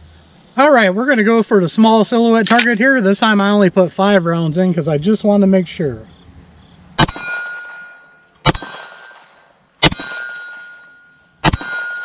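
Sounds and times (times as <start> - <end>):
pistol shots: 7.0 - 10.6, 11.4 - 12.0
steel target ringing: 7.0 - 12.0.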